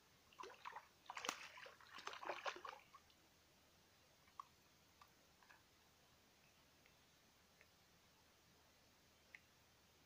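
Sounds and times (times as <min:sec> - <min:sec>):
fish splashing in water: 0:00.4 - 0:02.9.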